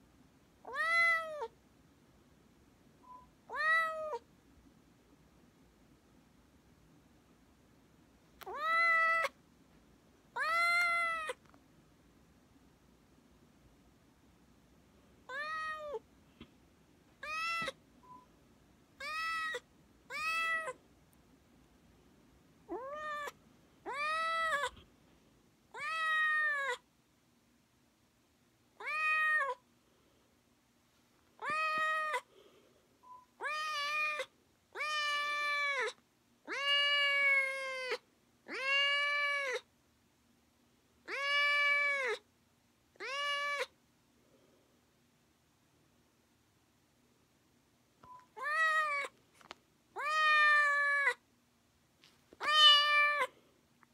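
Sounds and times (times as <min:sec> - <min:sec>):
kitten meowing: 0:08.4 - 0:09.4, 0:10.4 - 0:11.4, 0:15.3 - 0:16.0, 0:17.2 - 0:17.8, 0:19.0 - 0:20.8, 0:22.7 - 0:24.8, 0:31.4 - 0:32.2, 0:33.4 - 0:39.6, 0:48.4 - 0:49.1, 0:50.0 - 0:51.2, 0:52.4 - 0:53.3.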